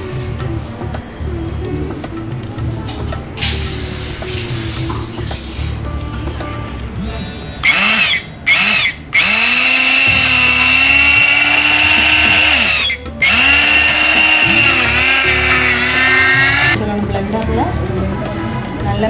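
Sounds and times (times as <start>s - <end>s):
electric hand blender whining: 7.6s - 16.8s.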